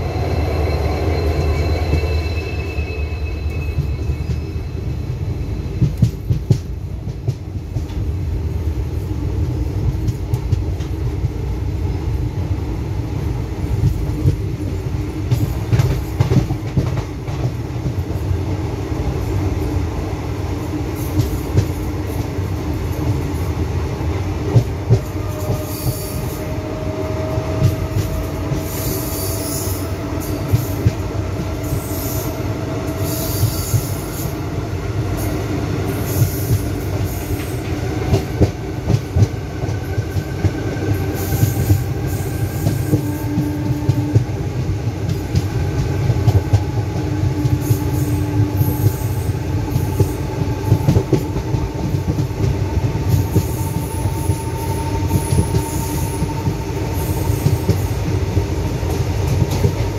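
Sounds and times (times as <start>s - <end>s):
whining wheel squeal: 0.0s - 5.7s
train rumble: 0.0s - 59.9s.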